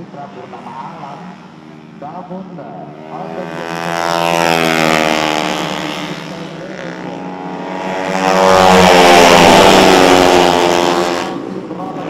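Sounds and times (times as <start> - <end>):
scooter engines passing at high revs: 2.8 - 12.0.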